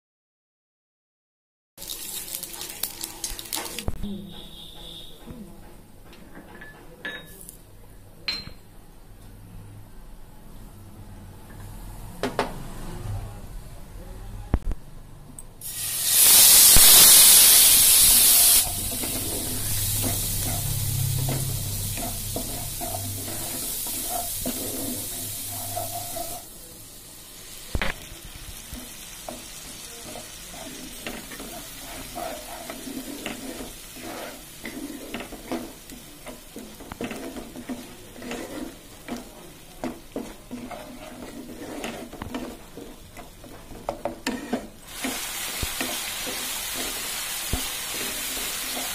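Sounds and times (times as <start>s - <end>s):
hot oil sizzling: 1.8s - 5.1s, 15.6s - 48.9s
spatula scraping pan: 18.2s - 26.4s, 28.8s - 48.9s.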